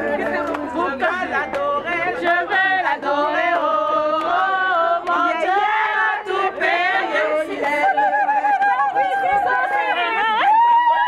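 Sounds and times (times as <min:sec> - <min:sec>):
group of voices singing: 0:00.0 - 0:11.0.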